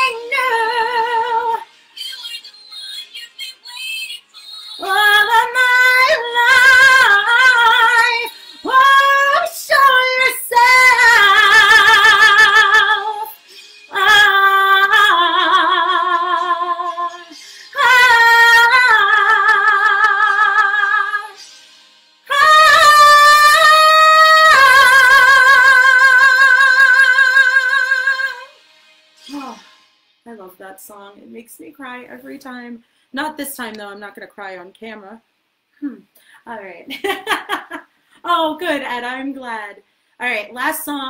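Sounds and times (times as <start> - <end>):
woman singing with vibrato: 0.0 - 21.4, 22.3 - 28.6
singer breathing: 17.3 - 17.8, 32.8 - 33.1, 36.2 - 36.5, 39.8 - 40.2.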